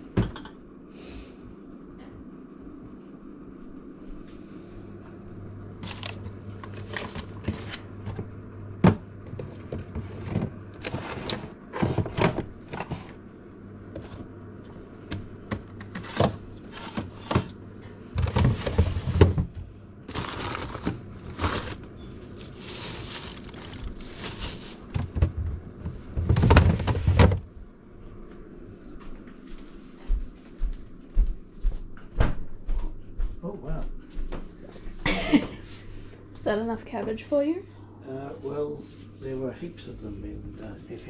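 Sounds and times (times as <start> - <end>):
refrigerator hum: 0.0 - 41.0
plastic crinkling: 20.1 - 25.0.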